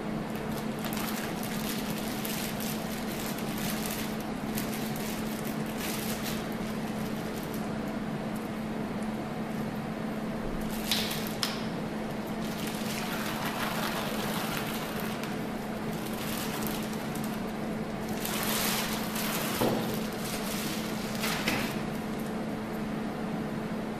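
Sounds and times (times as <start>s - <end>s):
steady low hum: 0.0s - 23.9s
plastic drape crinkling: 0.4s - 7.7s, 12.4s - 22.3s.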